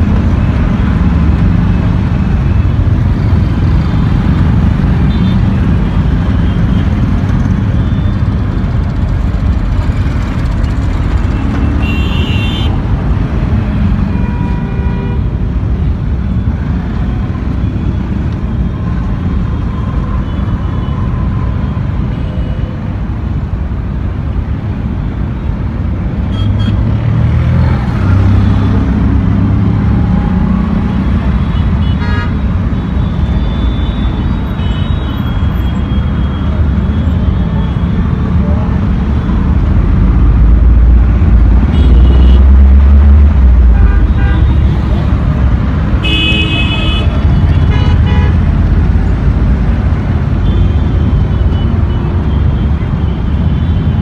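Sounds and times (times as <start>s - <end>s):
traffic engine rumble: 0.0s - 54.0s
vehicle horn honks: 46.0s - 48.4s.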